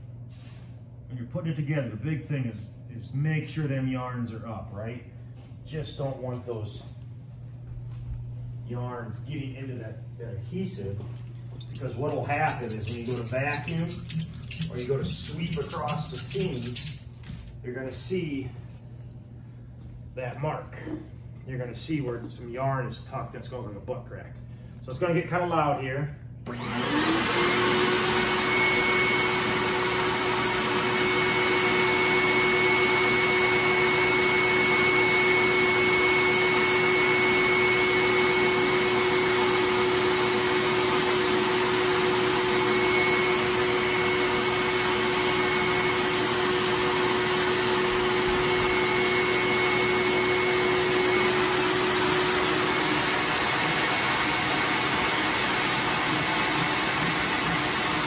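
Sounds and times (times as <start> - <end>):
vacuum motor whining: 11.5 - 17.0, 26.5 - 58.0.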